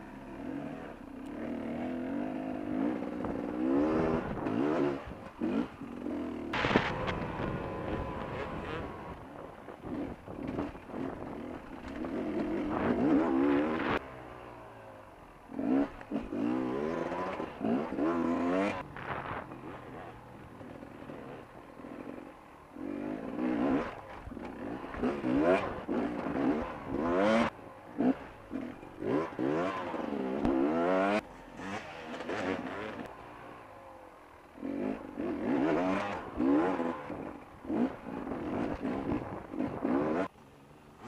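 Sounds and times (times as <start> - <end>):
motorcycle engine revving: 0.0 - 41.0.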